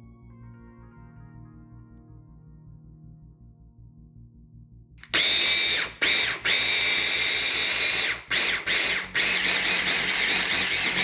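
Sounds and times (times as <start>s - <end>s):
electric chopper motor whining: 5.0s - 11.0s.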